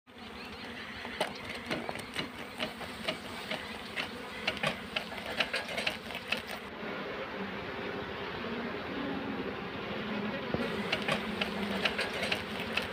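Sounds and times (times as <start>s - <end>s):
honeybees humming: 0.1s - 12.9s
bellows puffing and clacking: 0.6s - 6.7s, 10.6s - 12.9s.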